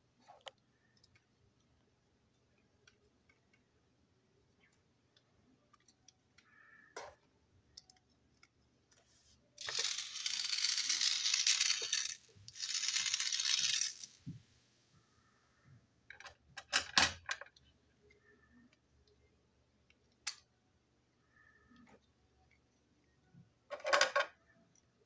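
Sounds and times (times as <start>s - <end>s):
plastic parts clicking on table: 9.6s - 14.2s, 23.7s - 24.4s
plastic toy gearbox rattling: 9.6s - 14.2s.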